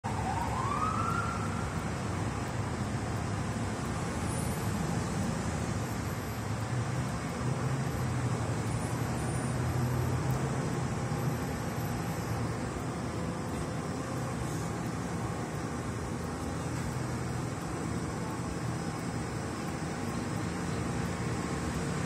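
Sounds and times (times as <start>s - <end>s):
road traffic noise: 0.0s - 22.0s
vehicle engine rumble: 0.0s - 22.0s.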